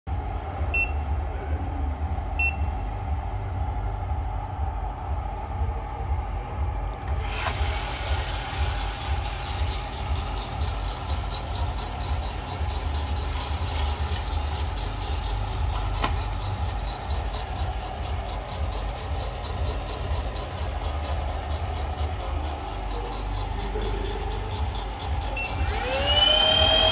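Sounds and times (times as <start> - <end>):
coffee roaster humming: 0.1 - 26.9
control panel beeps: 0.7 - 1.0, 2.4 - 2.7, 25.3 - 25.6
hiss with fast rattle: 7.2 - 26.1.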